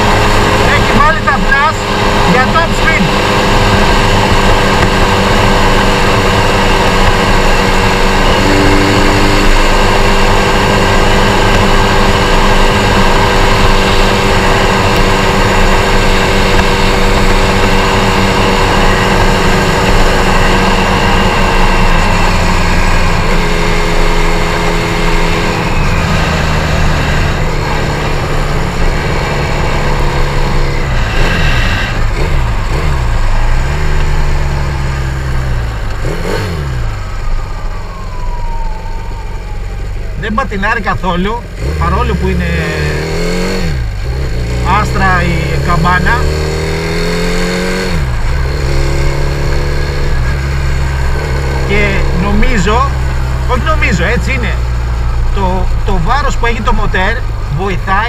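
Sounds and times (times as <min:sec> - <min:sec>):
moped engine at high revs: 0:00.0 - 0:58.0.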